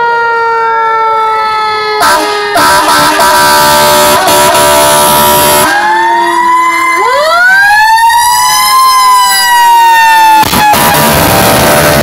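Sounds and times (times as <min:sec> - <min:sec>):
fire truck sirens wailing: 0:00.0 - 0:12.0.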